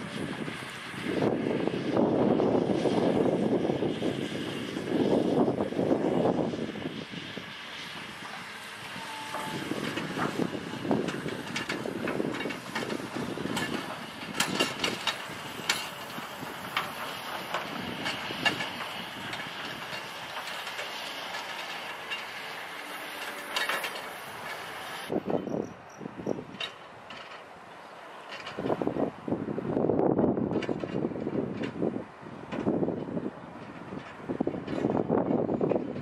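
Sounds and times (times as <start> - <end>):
diesel truck engine running: 0.0 - 25.4
metal clanks and rattles: 9.3 - 25.4, 26.3 - 27.5, 28.2 - 28.9.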